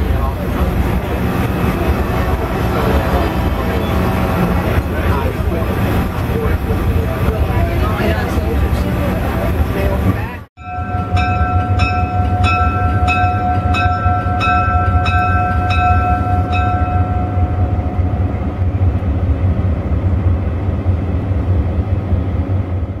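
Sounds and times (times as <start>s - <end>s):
diesel locomotive engine rumbling: 0.0s - 23.0s
locomotive bell ringing: 10.6s - 18.7s.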